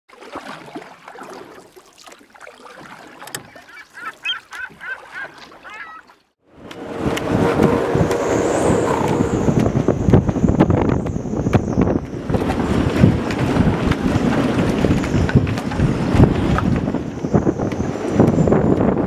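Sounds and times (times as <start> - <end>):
water noise: 0.1 - 19.0
storm wind buffeting microphone: 6.5 - 19.0.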